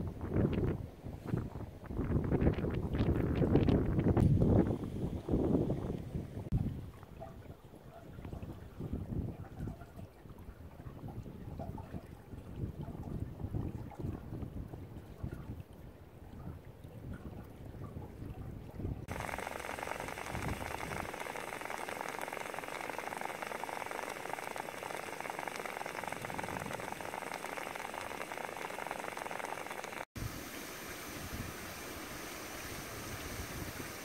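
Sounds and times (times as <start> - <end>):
mud pot hissing: 19.1 - 34.0
steam vent hissing: 19.1 - 34.0.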